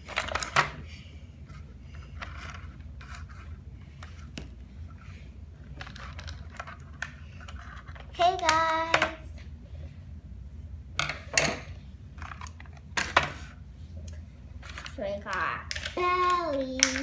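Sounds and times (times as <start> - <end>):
low room hum: 0.0 - 17.0
child's voice: 8.2 - 9.4, 15.0 - 17.0.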